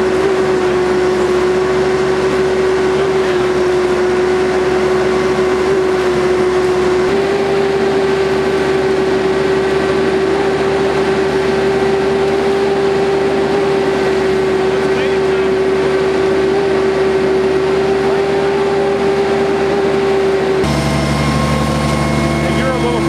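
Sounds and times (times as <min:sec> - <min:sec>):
concrete pump mechanical drone: 0:00.0 - 0:23.0
constant tone: 0:00.0 - 0:23.0.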